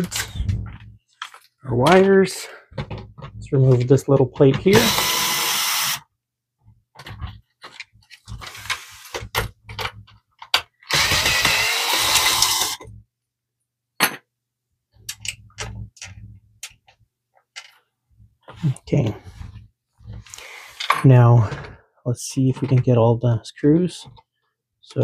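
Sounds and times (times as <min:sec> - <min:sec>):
cordless drill running: 0:04.7 - 0:06.0, 0:10.9 - 0:12.8
clicks and knocks of parts: 0:06.9 - 0:11.6, 0:15.0 - 0:17.9.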